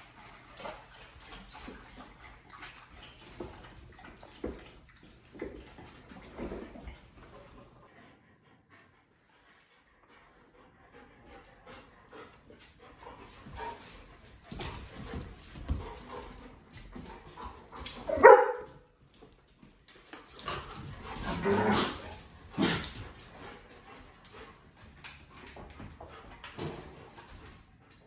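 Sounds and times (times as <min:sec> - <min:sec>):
dogs scuffling on hard floor: 0:00.3 - 0:07.8, 0:11.4 - 0:28.0
dog barking: 0:18.1 - 0:18.9.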